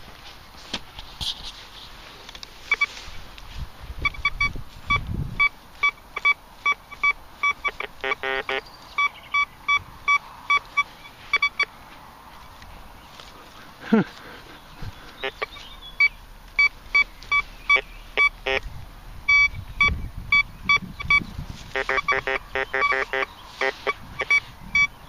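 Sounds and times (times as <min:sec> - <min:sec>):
metal detector beeping: 0:02.6 - 0:03.1, 0:04.0 - 0:11.8, 0:15.2 - 0:25.0
low buzzy detector tone: 0:04.0 - 0:11.7, 0:15.2 - 0:25.0.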